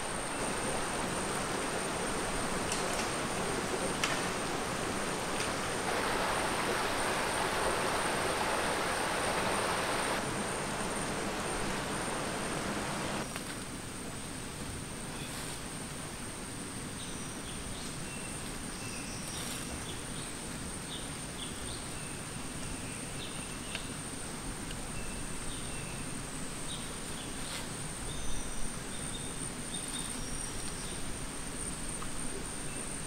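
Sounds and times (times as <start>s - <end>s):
high insect drone: 0.0s - 13.3s.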